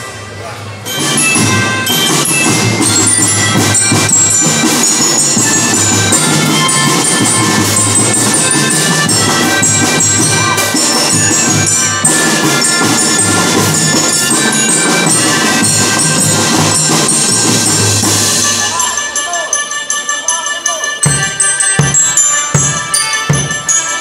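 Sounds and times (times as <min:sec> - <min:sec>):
marching bells: 0:00.0 - 0:24.0
melodicas playing melody: 0:00.0 - 0:24.0
snare drums: 0:00.9 - 0:19.1.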